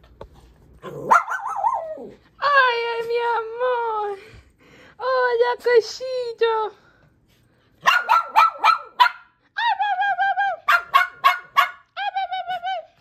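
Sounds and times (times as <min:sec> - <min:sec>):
dog whining: 0:00.9 - 0:02.2
dog barking: 0:01.0 - 0:02.0, 0:07.8 - 0:09.4, 0:10.7 - 0:11.9.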